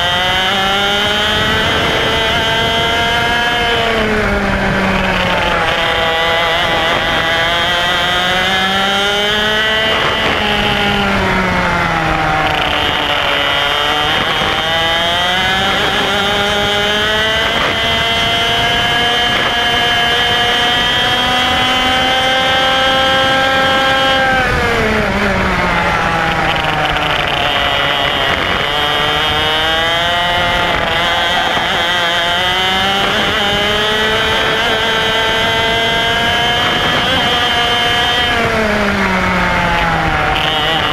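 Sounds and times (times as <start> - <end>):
kart engine racing: 0.0 - 40.9.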